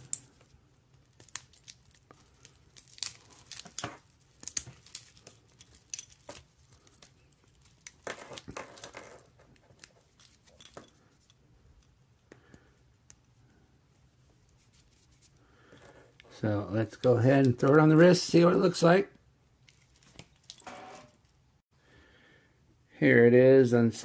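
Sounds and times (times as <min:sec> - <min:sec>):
plastic film peeling and crinkling: 0:00.0 - 0:08.6.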